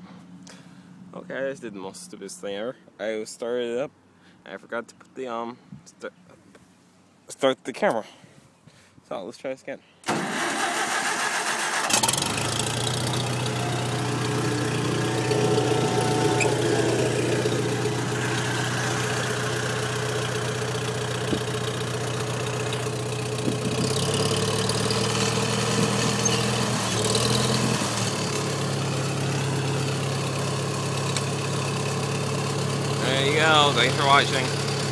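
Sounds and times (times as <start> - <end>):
tractor engine starting and idling: 10.0 - 34.9.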